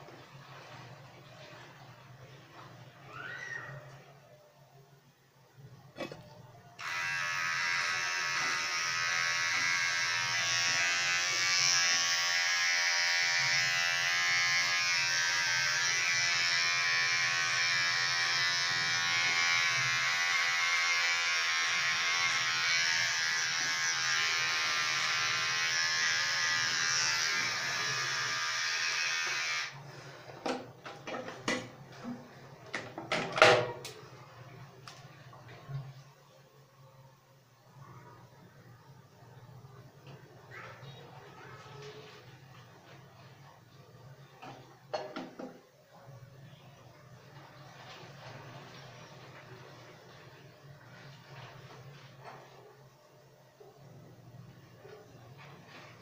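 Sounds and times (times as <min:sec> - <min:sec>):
electric hair clipper buzzing: 0:06.8 - 0:29.8.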